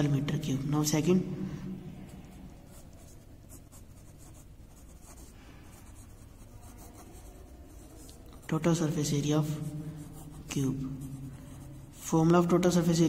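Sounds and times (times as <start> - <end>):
pen scratching on paper: 2.6 - 12.1.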